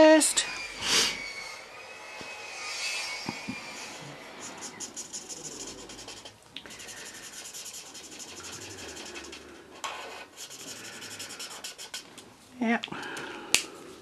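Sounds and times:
marker scribbling on paper: 4.4 - 9.4, 10.0 - 12.1.

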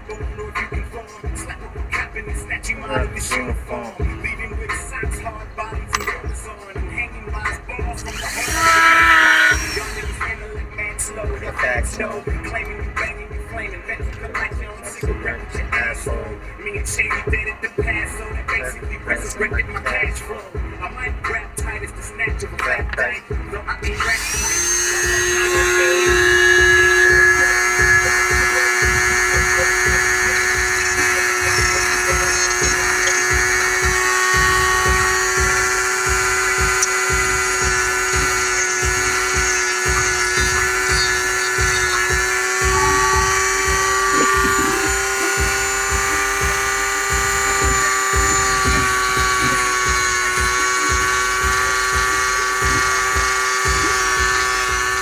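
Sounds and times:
rotary tool grinding whine: 7.9 - 12.1, 23.8 - 55.0.

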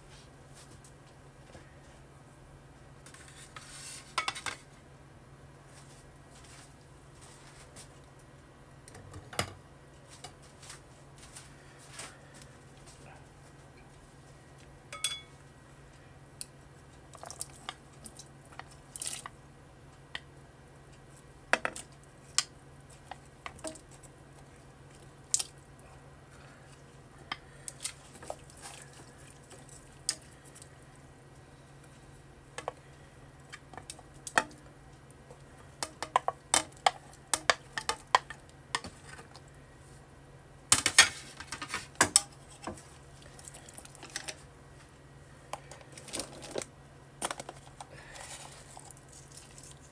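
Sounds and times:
chopsticks tapping metal pot: 14.9 - 15.3, 35.8 - 38.9.

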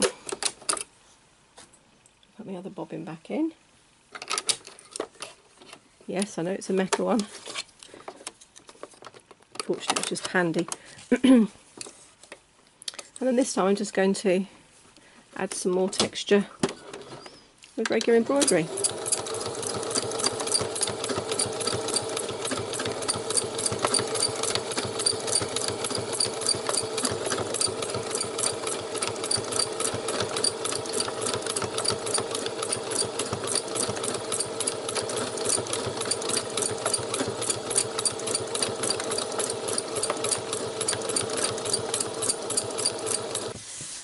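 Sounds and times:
sewing machine stitching: 18.1 - 43.6.

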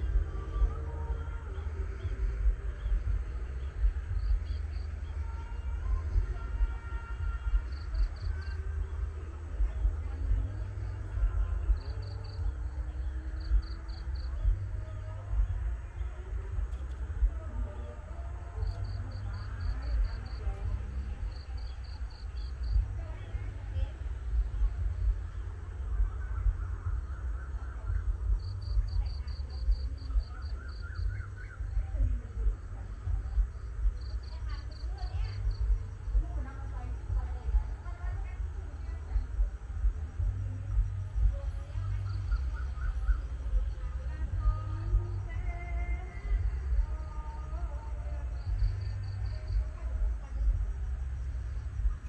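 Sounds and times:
insects chirping: 0.0 - 52.0
steady low rumble: 0.0 - 52.0
short wavering calls: 41.7 - 44.1.

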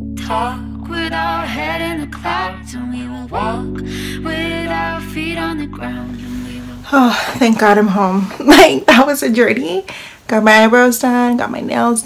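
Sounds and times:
song with sung vocal melody: 0.0 - 7.8
held low notes: 0.0 - 8.2.

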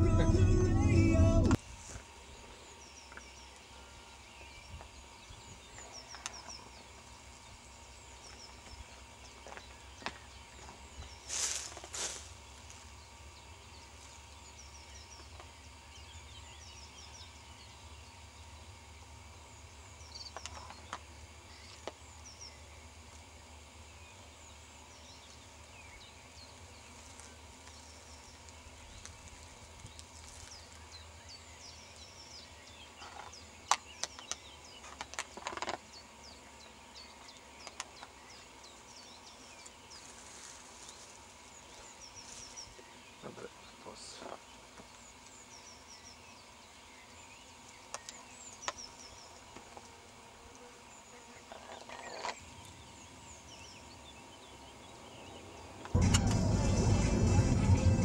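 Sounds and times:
low steady rumble: 0.0 - 2.4, 56.0 - 58.0
small birds chirping: 2.2 - 49.9, 50.6 - 56.0.

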